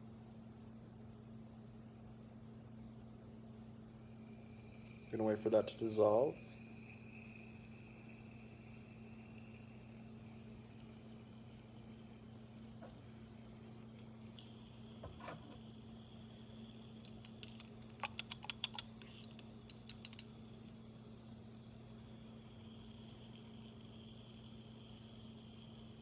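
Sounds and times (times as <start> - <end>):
steady low hum: 0.0 - 26.0
glass test tube clicking: 17.0 - 20.4.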